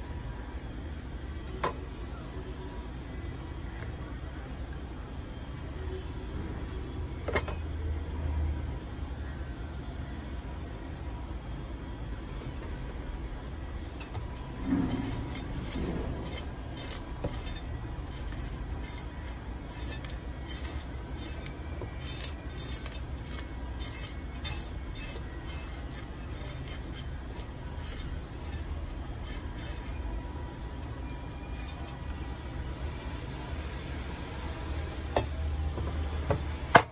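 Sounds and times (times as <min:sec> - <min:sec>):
blade scraping fish scales: 0:14.1 - 0:32.3.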